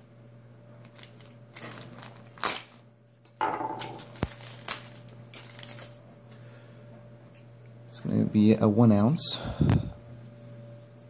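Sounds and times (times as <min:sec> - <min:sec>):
packaging crinkling and rustling: 0:00.8 - 0:06.0.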